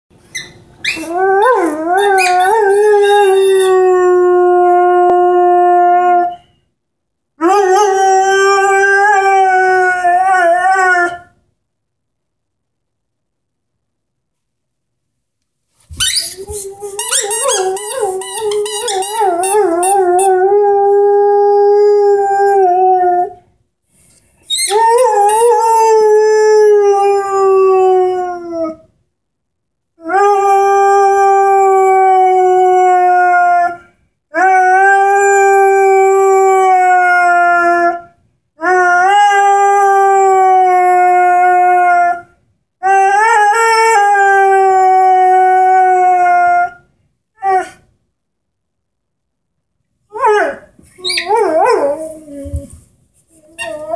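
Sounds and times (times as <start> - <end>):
dog howling: 0.9 - 6.4, 50.1 - 52.7.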